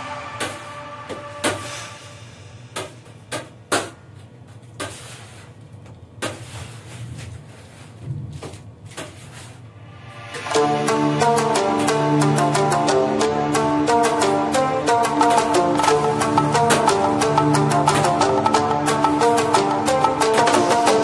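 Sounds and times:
music: 0:00.0 - 0:04.4, 0:09.7 - 0:21.0.

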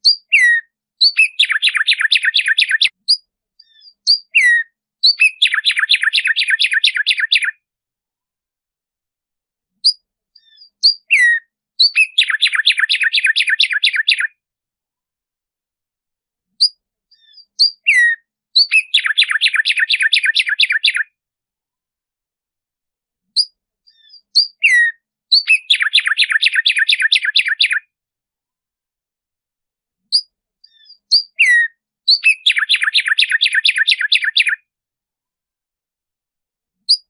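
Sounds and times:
sparrow singing: 0:00.0 - 0:07.6, 0:09.8 - 0:14.4, 0:16.5 - 0:21.1, 0:23.3 - 0:27.9, 0:30.1 - 0:34.6.

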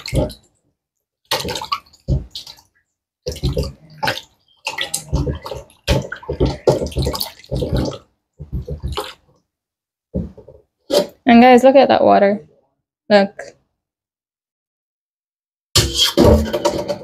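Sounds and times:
water splashing in a steel bowl: 0:00.0 - 0:00.6, 0:01.2 - 0:09.4.

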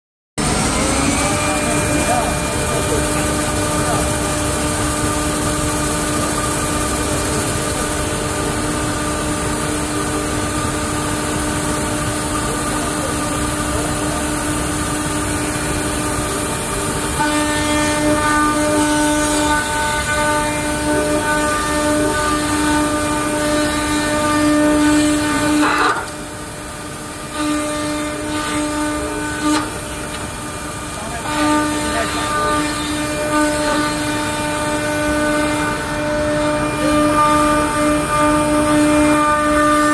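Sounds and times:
band saw cutting wood: 0:00.4 - 0:39.9
high multi-tone whine: 0:00.4 - 0:39.9.

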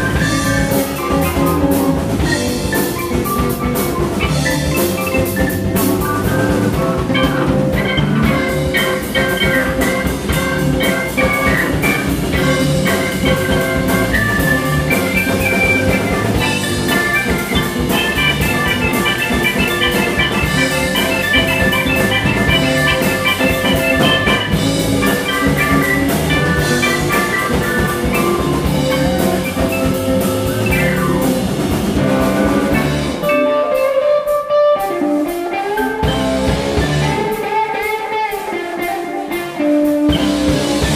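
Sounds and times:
bass: 0:00.0 - 0:34.0, 0:34.8 - 0:40.9
drum kit: 0:00.0 - 0:40.9
electric guitars: 0:00.0 - 0:40.9
keyboard: 0:00.0 - 0:40.9.

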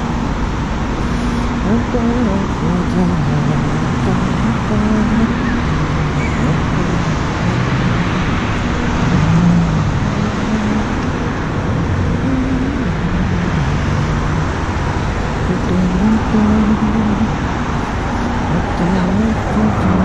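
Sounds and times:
low engine hum: 0:00.0 - 0:20.0
street traffic rushing: 0:00.0 - 0:20.0.

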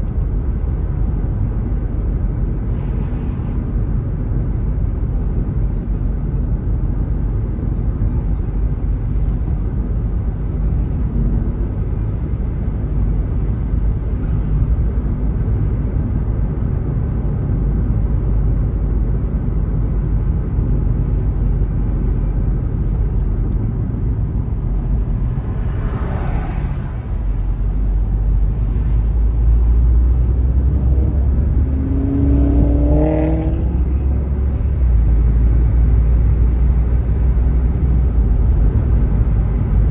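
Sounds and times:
car road noise rumble: 0:00.0 - 0:39.9
engine note rising: 0:29.3 - 0:34.5.

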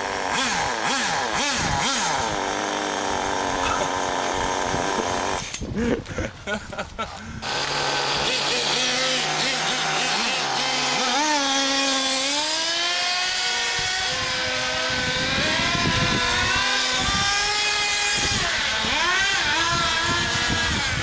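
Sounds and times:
model engines whining at high revs: 0:00.0 - 0:05.7, 0:07.1 - 0:21.0.

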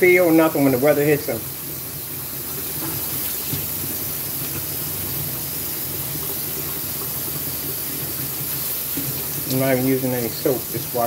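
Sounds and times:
faucet running into sink: 0:00.0 - 0:11.0.

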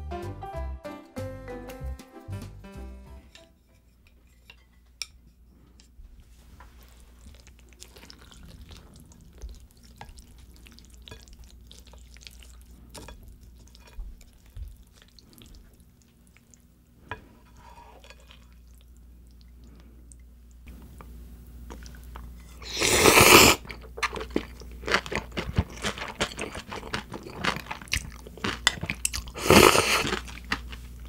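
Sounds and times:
noodles and slushy broth crackling: 0:06.7 - 0:16.8, 0:21.7 - 0:31.0.

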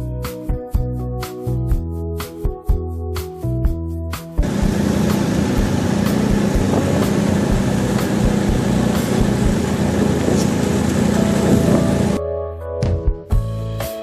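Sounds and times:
snowmobile engine running: 0:04.4 - 0:12.2.

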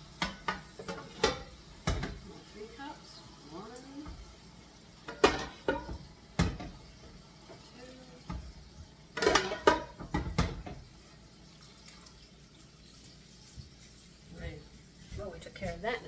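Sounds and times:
utensil clanking on metal pots: 0:00.0 - 0:03.0, 0:03.9 - 0:10.9.

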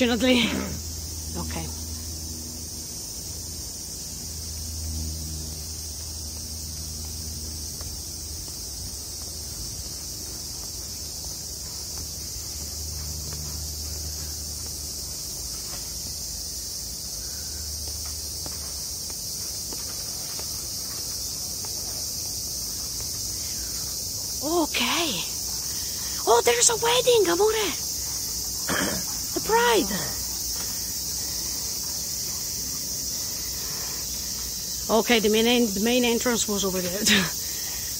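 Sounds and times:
cicadas shrilling: 0:00.0 - 0:37.9
footsteps on stone steps: 0:06.2 - 0:17.0, 0:17.8 - 0:24.5, 0:25.3 - 0:34.9.

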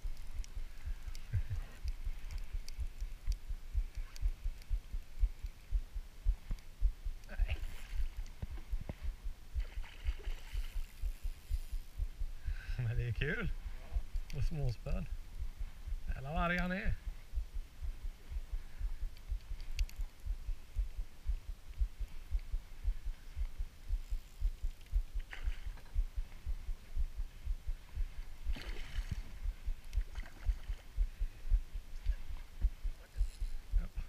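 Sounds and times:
faint clicks: 0:00.0 - 0:12.0, 0:14.0 - 0:15.5, 0:16.4 - 0:16.7, 0:18.3 - 0:31.1.

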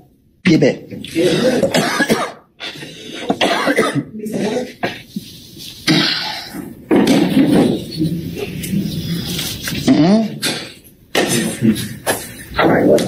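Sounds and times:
man coughing and clearing throat: 0:01.2 - 0:05.1, 0:05.8 - 0:07.8, 0:09.9 - 0:12.6.

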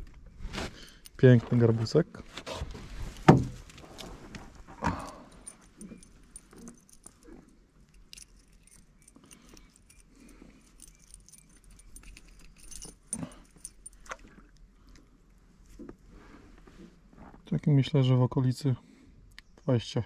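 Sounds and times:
small metallic jingle: 0:00.8 - 0:01.8, 0:04.8 - 0:14.8.

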